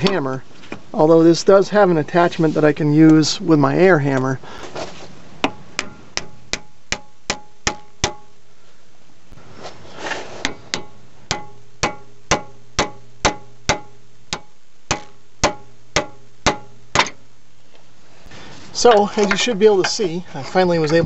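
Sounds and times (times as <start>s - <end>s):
hammer striking metal with ring: 5.4s - 8.4s, 10.4s - 17.2s.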